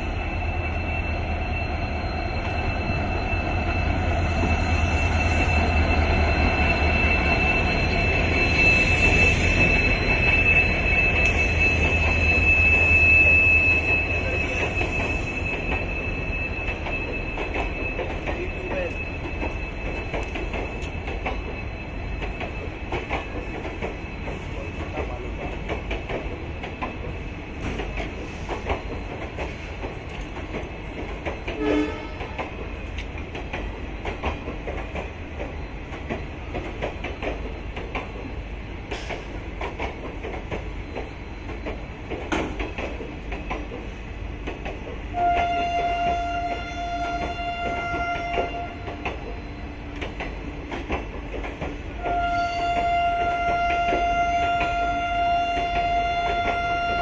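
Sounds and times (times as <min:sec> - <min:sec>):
train wheels clattering over rail joints: 0:11.2 - 0:57.0
train horn: 0:31.5 - 0:32.4, 0:45.1 - 0:49.0, 0:51.9 - 0:57.0.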